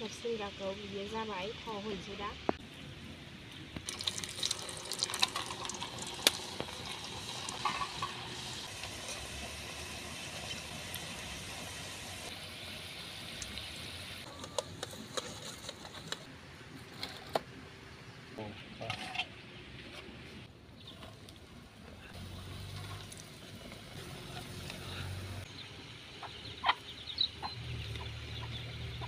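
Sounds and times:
food deep-frying in oil: 3.6 - 16.3, 22.1 - 29.0
sharp crackling pops: 5.0 - 8.9.

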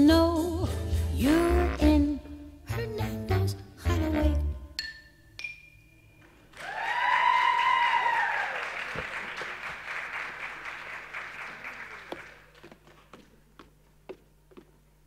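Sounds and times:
audience clapping: 6.5 - 13.2
whooping cheers: 6.6 - 9.1.

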